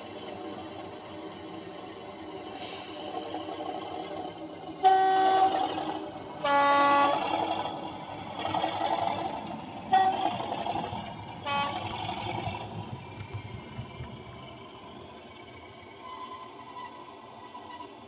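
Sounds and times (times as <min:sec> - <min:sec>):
two-tone locomotive horn: 0:04.8 - 0:05.8, 0:06.4 - 0:07.6, 0:09.8 - 0:10.6, 0:11.4 - 0:12.1.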